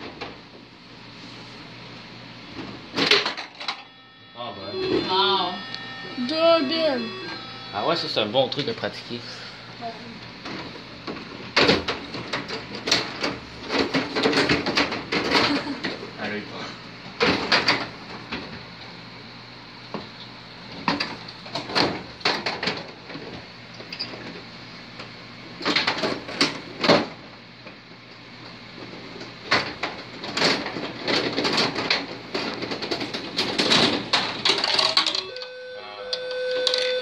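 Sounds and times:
plastic clacking and rattling: 29.5s - 35.2s.

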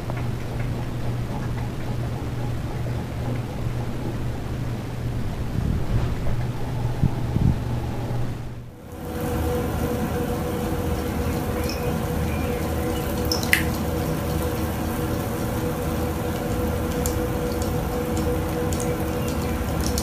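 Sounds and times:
water trickling and dripping: 0.0s - 4.6s, 8.8s - 20.0s
aquarium pump hum: 0.0s - 20.0s.

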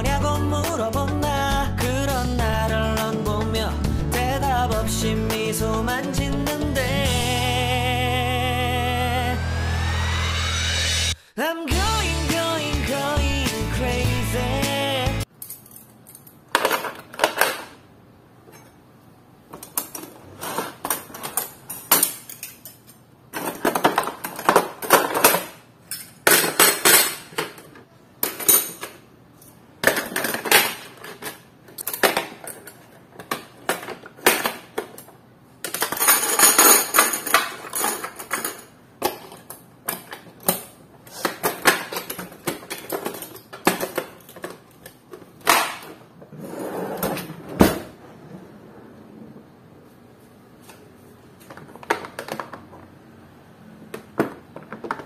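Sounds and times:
dishes and utensils clinking: 19.6s - 35.0s, 35.6s - 44.6s.

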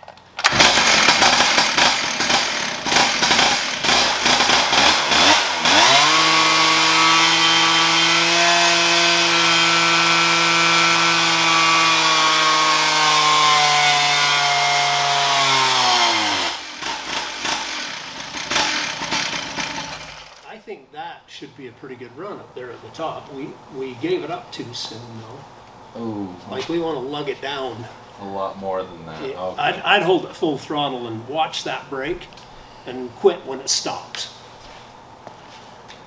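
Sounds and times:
chainsaw engine revving: 0.4s - 20.5s.

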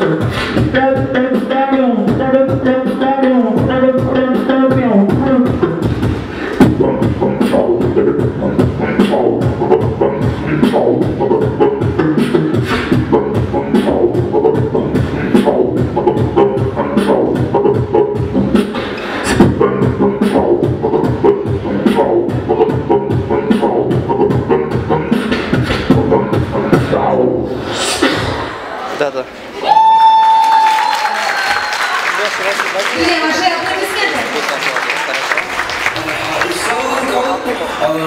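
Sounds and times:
hummed bass line: 0.0s - 28.4s
beatboxing beat: 0.0s - 28.6s.

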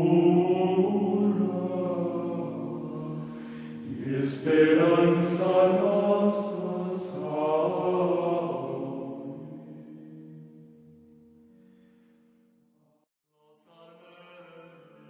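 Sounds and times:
slow low choral chant: 0.0s - 11.0s.

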